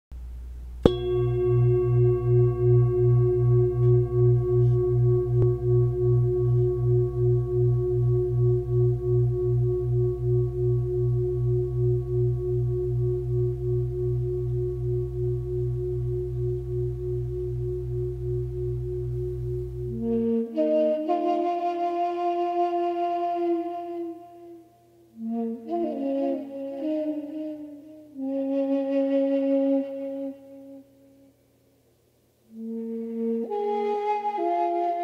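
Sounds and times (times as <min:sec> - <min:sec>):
metal bell ringing: 0:00.9 - 0:03.4.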